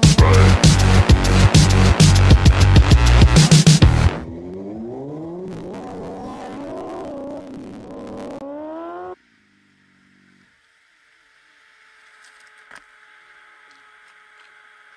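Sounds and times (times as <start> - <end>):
music: 0.0 - 4.3
motorcycle engine revving: 0.9 - 9.2.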